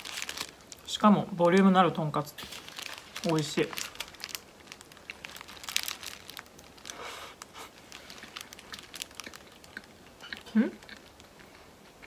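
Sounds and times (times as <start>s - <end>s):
paper wrapper crinkling: 0.0s - 10.2s
chewing: 7.4s - 12.0s.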